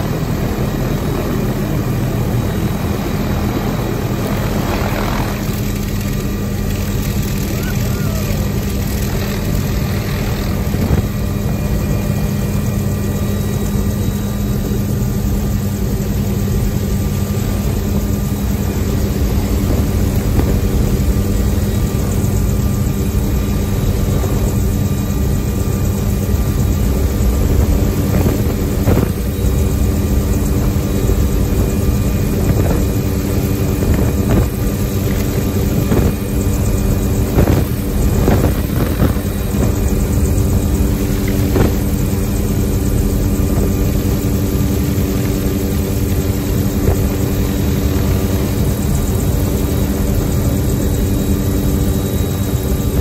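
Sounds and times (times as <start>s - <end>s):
helicopter rotor and turbine: 0.0s - 53.0s
wind rushing past microphone: 26.3s - 53.0s.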